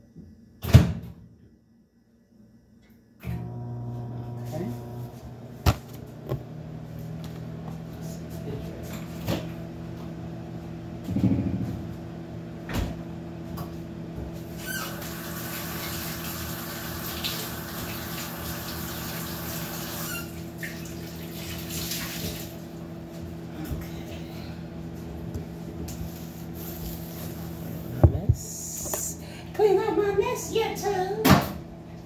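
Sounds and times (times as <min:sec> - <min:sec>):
steady low hum: 0:01.7 - 0:14.4, 0:22.8 - 0:32.0
kitchen faucet running: 0:14.5 - 0:22.8.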